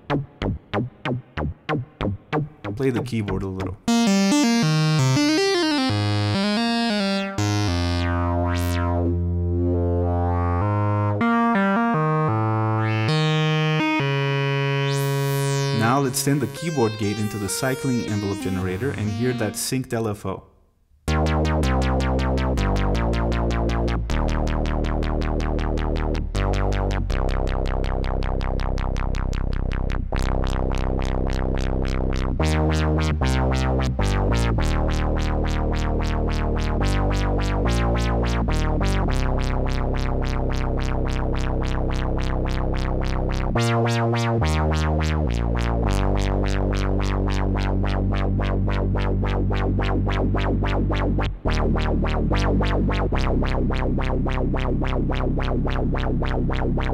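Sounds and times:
pulsing synth notes: 3.9 - 19.6.

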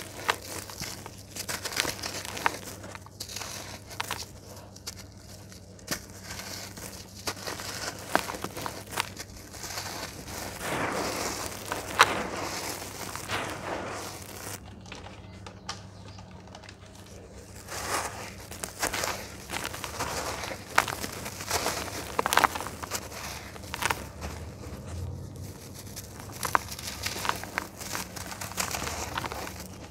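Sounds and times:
gritty crunching of dry clay: 0.0 - 29.9
small crackles: 0.0 - 29.9
sharp crack: 9.7 - 24.8
soft hiss of falling dust: 10.6 - 14.6.

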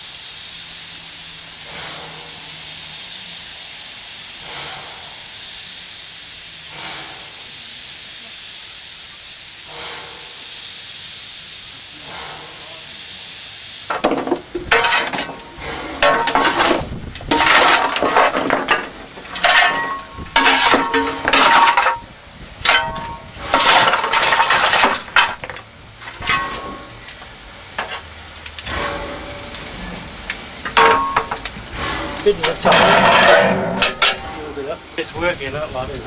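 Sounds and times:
steady background hiss: 0.0 - 36.0
shovel scraping coal: 13.9 - 27.0, 30.7 - 34.5.

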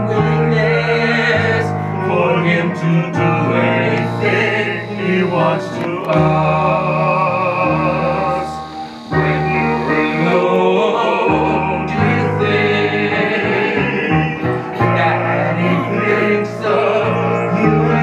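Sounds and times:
operatic singing with instruments: 0.0 - 18.0.

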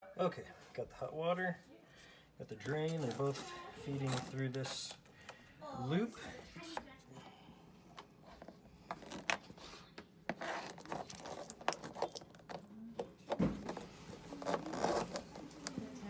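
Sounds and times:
hoses rubbing and scraping: 8.3 - 12.6, 13.6 - 15.8.

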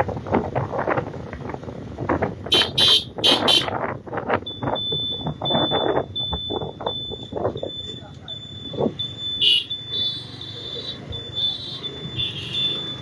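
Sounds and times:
wind buffeting microphone: 0.0 - 7.9
motorcycle riding: 0.0 - 13.0
pulsing high electronic beep: 4.5 - 13.0.

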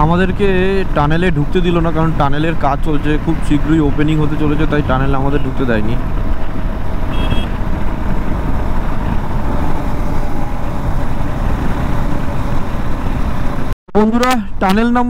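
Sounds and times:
motorcycle engine humming: 0.0 - 13.8
wind rushing over camera: 1.9 - 13.8.

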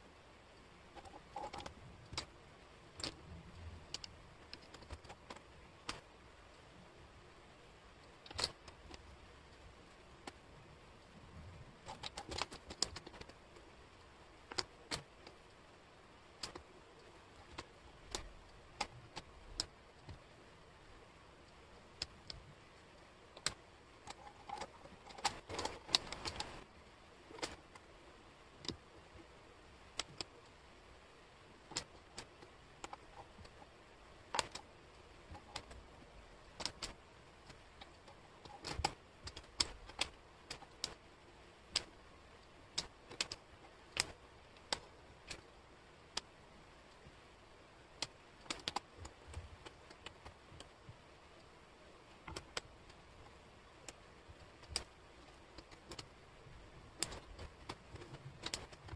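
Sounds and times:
wooden puzzle pieces clicking: 0.9 - 6.1, 8.0 - 9.2, 11.8 - 13.7, 14.4 - 15.5, 16.4 - 20.3, 21.5 - 27.9, 29.9 - 30.5, 31.6 - 47.1, 47.9 - 58.9.

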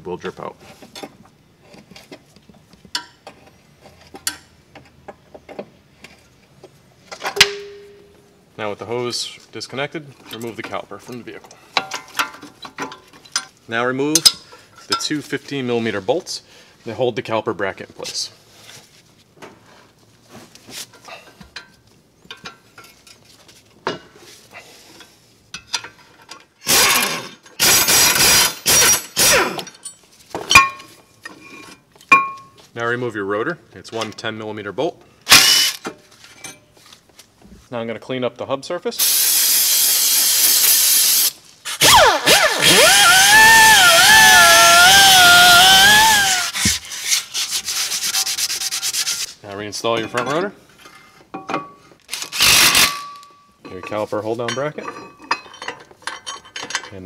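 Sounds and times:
pneumatic air ratchet bursts: 26.6 - 29.7, 35.3 - 35.8, 39.0 - 47.3, 52.1 - 53.1.

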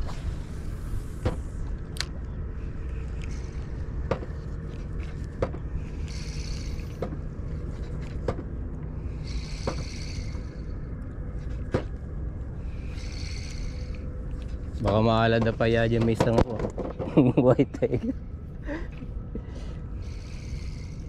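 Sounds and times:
low rumble: 0.0 - 21.0
fishing reel whirring: 2.8 - 4.0, 5.8 - 8.2, 9.0 - 10.8, 12.6 - 14.7, 20.0 - 21.0.

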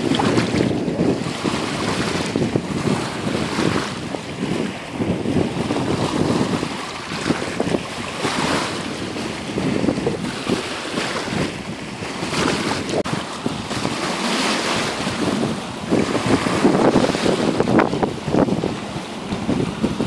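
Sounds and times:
waves lapping at shore: 0.0 - 20.0
wind buffeting microphone: 0.0 - 20.0.

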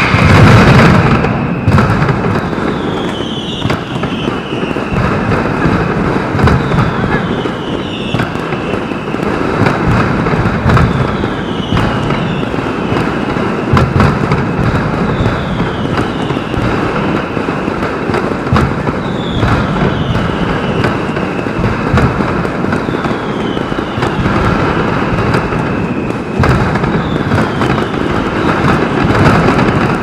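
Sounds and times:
falling firework whistle: 0.0 - 30.0
firecracker bangs: 0.0 - 30.0.

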